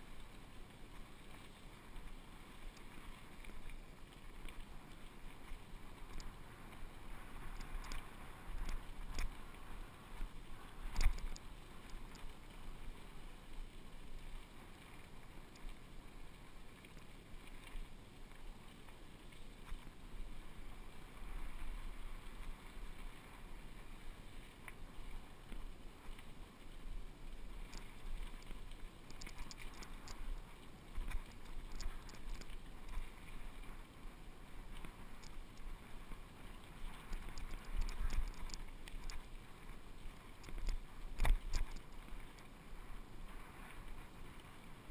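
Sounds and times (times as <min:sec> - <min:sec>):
bike tyres rolling on dirt: 0:00.0 - 0:44.9
bike rattling and clicking: 0:29.1 - 0:30.2, 0:37.1 - 0:39.2, 0:40.4 - 0:42.0.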